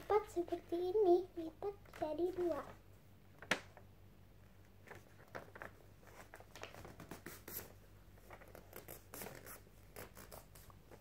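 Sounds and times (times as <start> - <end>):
paper rustling and creasing: 1.8 - 2.8, 4.8 - 7.2, 8.2 - 11.0
paper being folded: 4.8 - 11.0.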